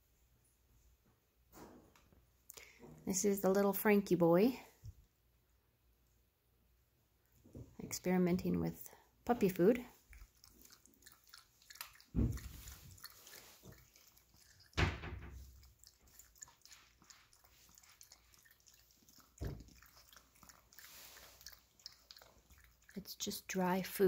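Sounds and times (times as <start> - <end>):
puppy crunching kibble: 10.0 - 14.8, 15.4 - 23.4
dull thumps: 12.1 - 12.8.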